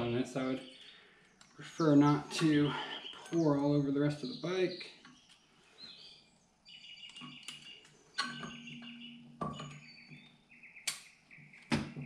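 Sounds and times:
sharp knocks: 11.6s - 12.0s.

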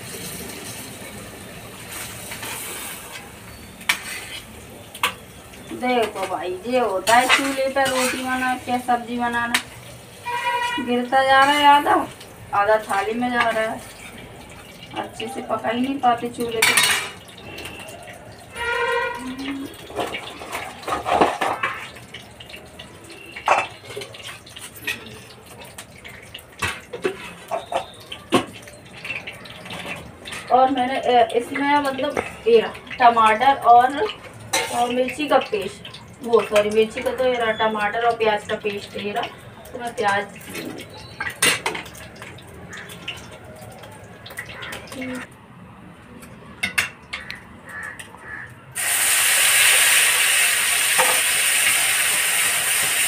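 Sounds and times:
cheese cubes sizzling in oil: 0.0s - 43.8s, 47.7s - 53.0s
metal ladle scraping a pan: 1.9s - 5.2s, 7.0s - 8.8s, 10.1s - 12.0s, 18.5s - 21.9s, 26.6s - 28.0s, 34.5s - 35.0s.

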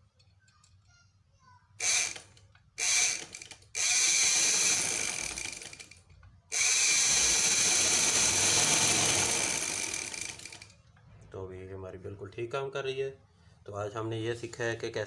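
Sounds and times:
sewing machine motor running: 1.8s - 10.7s.

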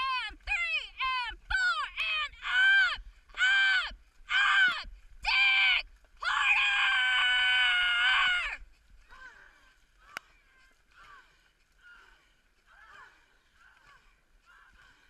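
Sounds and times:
long held yell: 0.0s - 8.6s
person shouting calls: 0.0s - 8.6s.

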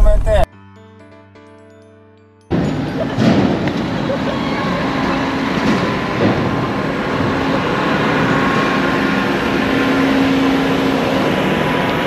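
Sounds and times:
loud steady rushing noise: 2.5s - 12.0s.

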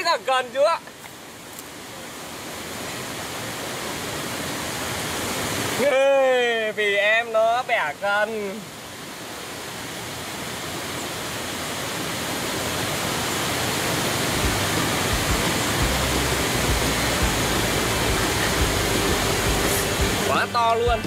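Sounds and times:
steady rushing noise: 7.6s - 21.0s
low rumbling: 14.4s - 21.0s.

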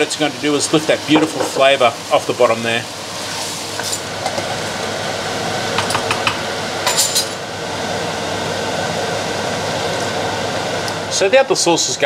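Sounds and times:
wine simmering in frying pan: 0.0s - 6.8s.

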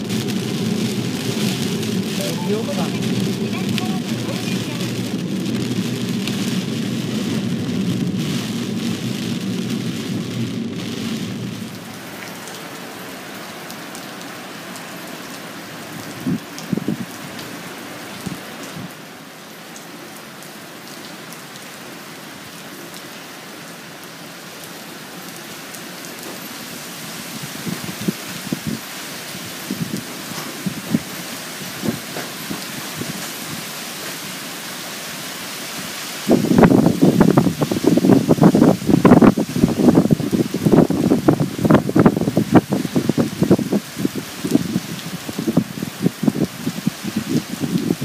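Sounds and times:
heavy rain beating on car: 0.0s - 48.0s
rain hiss: 0.0s - 48.0s
tyres rumbling on wet road: 0.0s - 48.0s.

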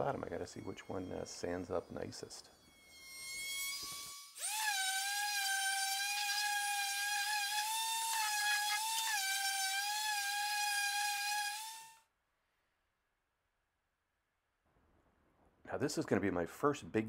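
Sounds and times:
orbital sander whining: 2.8s - 12.0s.

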